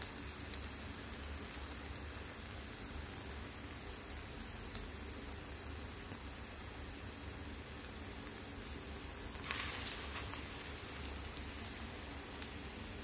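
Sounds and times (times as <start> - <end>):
fritters sizzling in oil: 0.0 - 13.0
oil crackling: 9.3 - 13.0.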